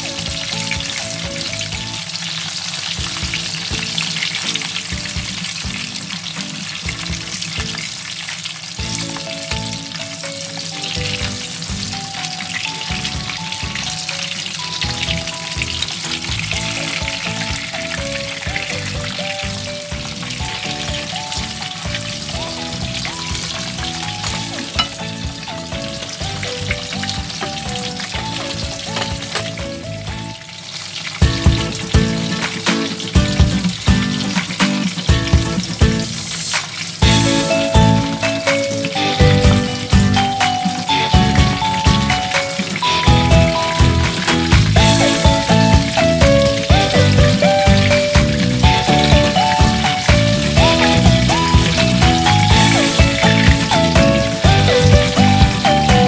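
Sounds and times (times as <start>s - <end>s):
simple melody: 0.0s - 7.9s, 8.8s - 34.4s, 37.0s - 56.0s
hot dogs sizzling in a pan: 0.0s - 56.0s
spatula knocking and scraping: 28.9s - 29.6s.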